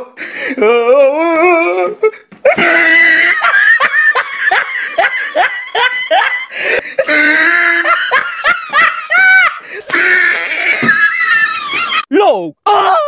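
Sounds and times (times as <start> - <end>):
person laughing loudly: 2.4 - 12.1.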